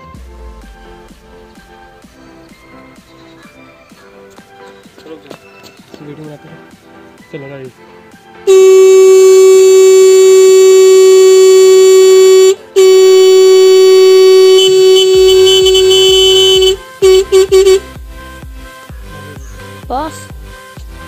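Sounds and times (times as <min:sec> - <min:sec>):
horn blasts: 0:08.4 - 0:18.0
low musical beat: 0:08.5 - 0:19.4.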